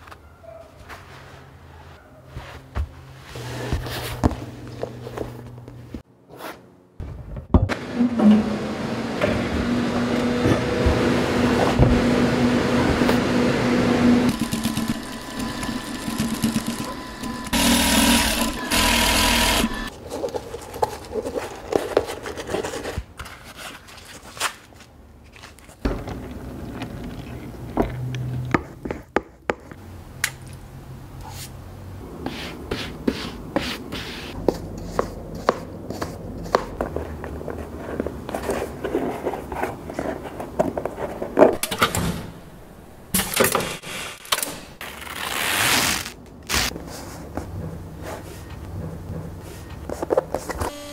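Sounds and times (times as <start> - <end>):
industrial sewing machine running: 13.3 - 19.9.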